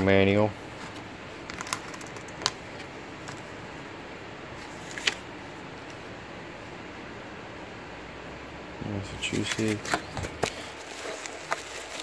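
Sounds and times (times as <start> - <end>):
steady low hiss: 0.0 - 12.0
paper crinkling and clicks: 4.8 - 5.2, 9.3 - 12.0.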